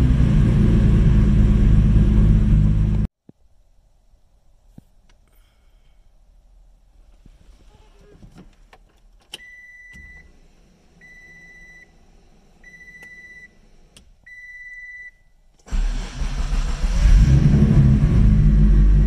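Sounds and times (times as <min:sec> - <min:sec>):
car engine cranking and running: 0:00.0 - 0:03.1, 0:15.6 - 0:19.0
car warning chime beeping: 0:09.4 - 0:10.3, 0:11.0 - 0:11.9, 0:12.6 - 0:13.6, 0:14.3 - 0:15.4.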